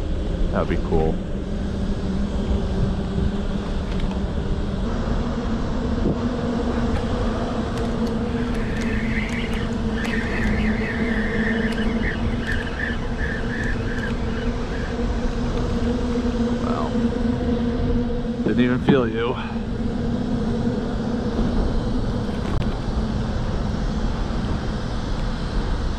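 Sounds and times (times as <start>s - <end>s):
low mechanical motor hum: 0.0s - 25.9s
wind rumble on microphone: 0.0s - 25.9s.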